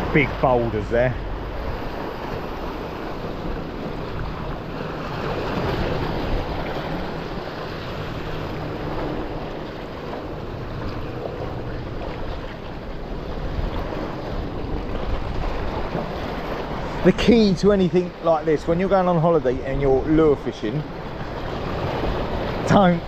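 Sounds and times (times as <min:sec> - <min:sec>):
sea washing against rocks: 0:00.0 - 0:23.0
wind buffeting microphone: 0:00.0 - 0:23.0.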